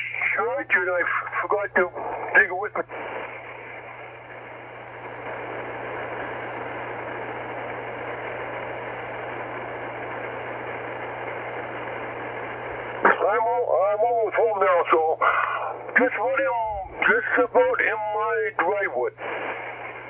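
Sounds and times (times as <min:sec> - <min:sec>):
radio static hiss: 0:00.0 - 0:20.0
low hum: 0:02.0 - 0:13.3.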